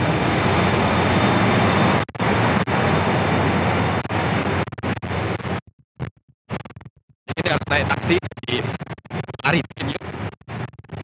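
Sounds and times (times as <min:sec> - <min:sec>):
train rushing noise: 0:00.0 - 0:05.6.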